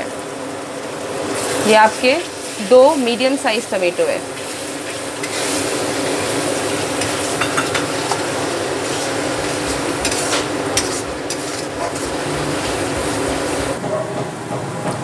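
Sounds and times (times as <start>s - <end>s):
puree sizzling in hot oil: 0.0s - 13.8s.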